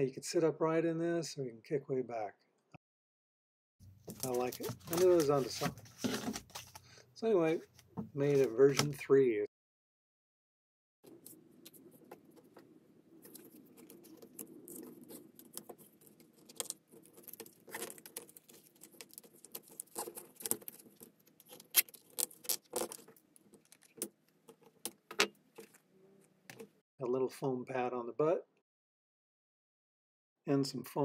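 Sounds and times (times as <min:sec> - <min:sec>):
plastic sheet scraping and rustling: 0:04.0 - 0:06.8.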